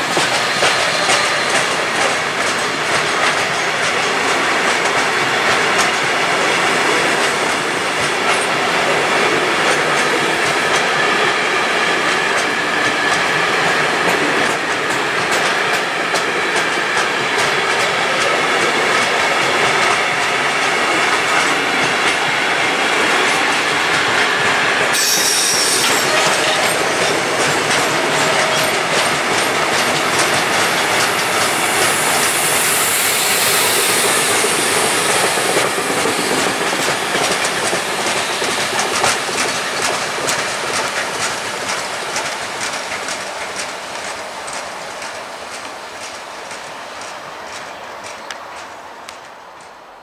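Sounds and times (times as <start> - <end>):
train wheels clattering: 0.0 - 49.9
high wheel squeal: 24.9 - 29.1, 31.2 - 35.4.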